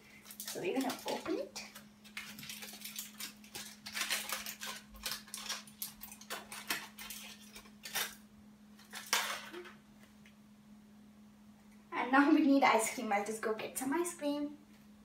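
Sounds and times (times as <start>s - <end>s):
aluminium foil crinkling: 0.0s - 8.2s, 8.8s - 9.8s.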